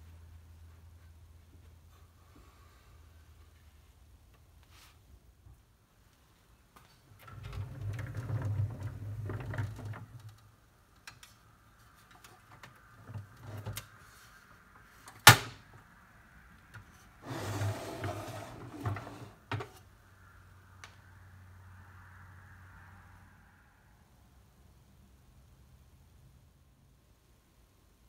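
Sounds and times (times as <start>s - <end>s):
toy truck rolling on wood: 7.2s - 10.5s
toy truck scraping: 17.2s - 19.5s.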